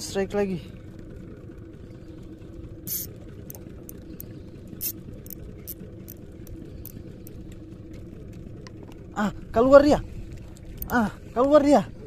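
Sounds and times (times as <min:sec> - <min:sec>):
boat engine idling: 0:00.0 - 0:12.0
sharp high-pitched ticks: 0:02.9 - 0:03.1.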